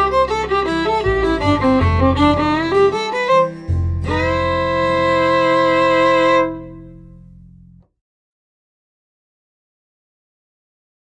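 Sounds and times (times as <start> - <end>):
instrumental background music: 0.0 - 7.9.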